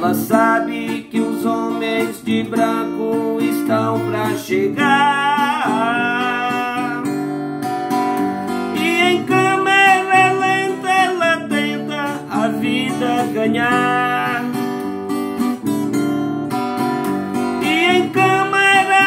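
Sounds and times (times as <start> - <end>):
man singing long notes: 0.0 - 7.2, 8.7 - 14.6, 17.6 - 19.0
acoustic guitar strumming chords: 0.0 - 19.0.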